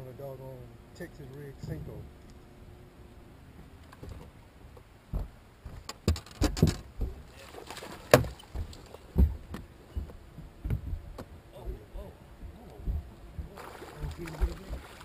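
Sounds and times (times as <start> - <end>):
footsteps on boat deck: 3.6 - 7.3, 8.0 - 11.4.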